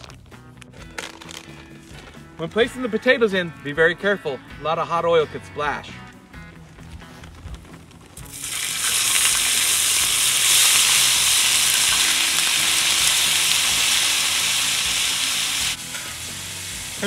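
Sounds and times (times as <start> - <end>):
hash browns sizzling in grease: 8.2 - 17.0.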